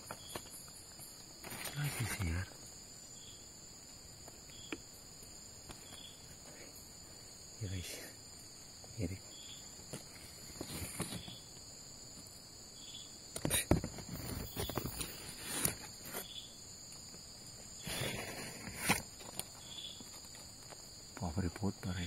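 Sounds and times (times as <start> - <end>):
rustling: 0.0 - 2.4, 9.8 - 11.5, 13.8 - 16.3, 17.8 - 20.8
night insects chorus: 0.0 - 22.0.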